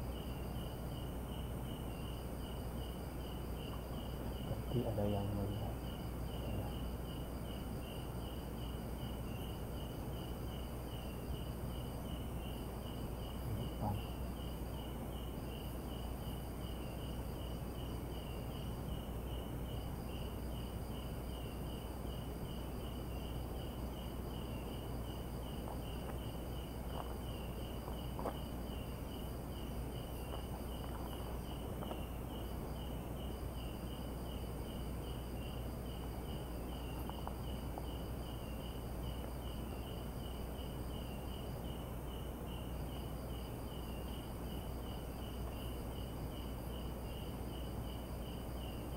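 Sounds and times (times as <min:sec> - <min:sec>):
constant high whine: 0:00.0 - 0:48.9
cricket chirping: 0:00.0 - 0:48.9
insect trilling: 0:12.1 - 0:41.8.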